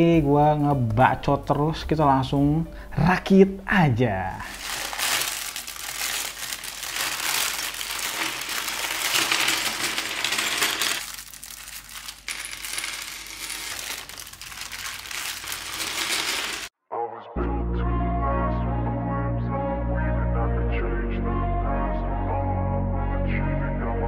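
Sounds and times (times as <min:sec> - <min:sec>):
plastic bags crinkling: 0:04.4 - 0:16.7
plastic bricks clinking: 0:04.5 - 0:16.7.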